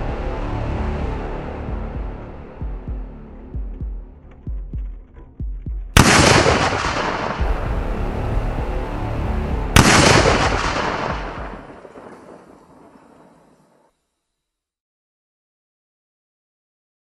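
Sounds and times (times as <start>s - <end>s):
heartbeat-like thumps: 1.7s - 6.0s
echoing gunshots: 5.9s - 7.8s, 9.7s - 13.5s.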